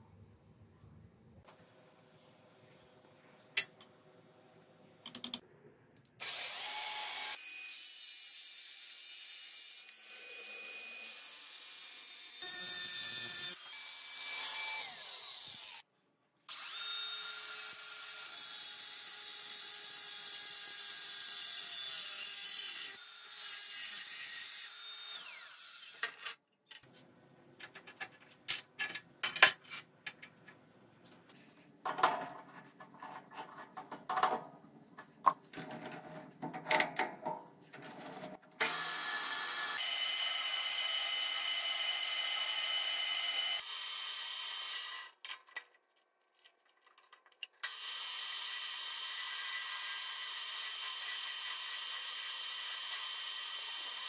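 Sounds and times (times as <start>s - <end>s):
metal clicks and knocks: 31.9s - 38.4s.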